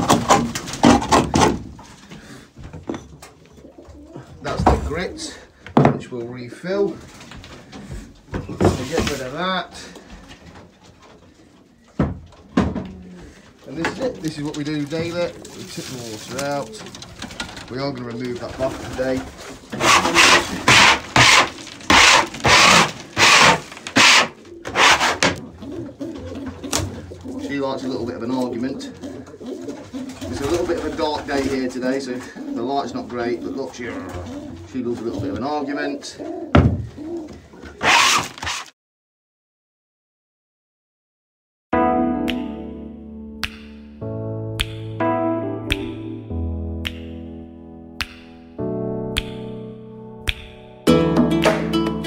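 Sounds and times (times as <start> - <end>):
scraping strokes on floor: 19.8 - 25.4
instrumental music with held chords: 41.8 - 52.0
sharp tick: 43.4 - 43.9, 44.6 - 45.0, 45.7 - 46.0, 46.8 - 47.2, 48.0 - 48.5, 49.1 - 49.6, 50.2 - 50.7.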